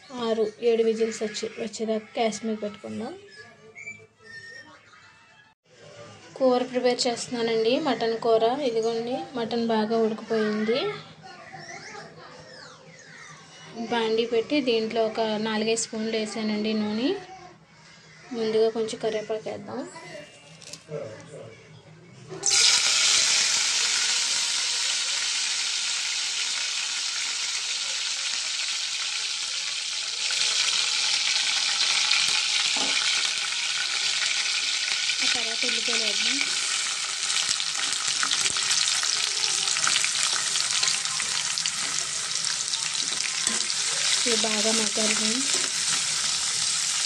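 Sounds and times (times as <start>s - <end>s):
leaves sizzling in hot oil: 22.4s - 47.0s.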